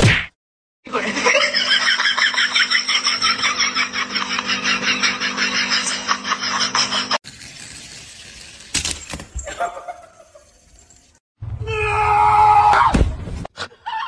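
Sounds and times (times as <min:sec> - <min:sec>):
person laughing hard: 0:00.9 - 0:07.2.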